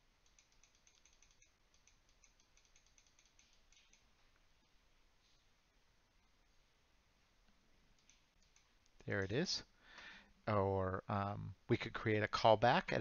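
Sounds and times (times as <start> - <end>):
mouse scroll wheel clicking: 0.2 - 4.1.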